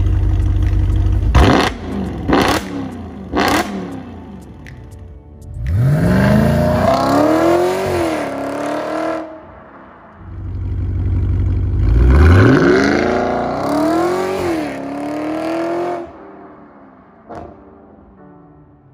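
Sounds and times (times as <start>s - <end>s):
car engine accelerating hard: 0.0s - 4.1s, 5.6s - 9.4s, 10.2s - 16.1s
low engine rumble: 0.0s - 7.4s, 9.5s - 12.5s.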